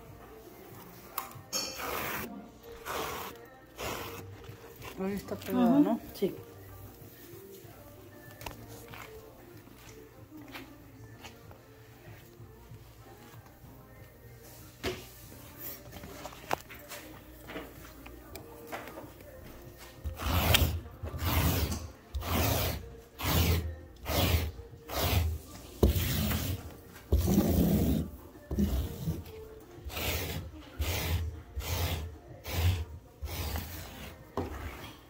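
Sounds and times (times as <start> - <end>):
tool scraping carpet: 20.1 - 29.3, 29.9 - 34.9.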